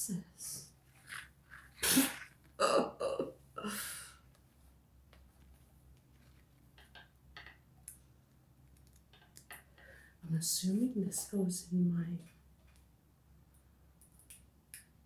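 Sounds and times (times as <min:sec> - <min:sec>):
woman grunting: 0:01.8 - 0:04.1.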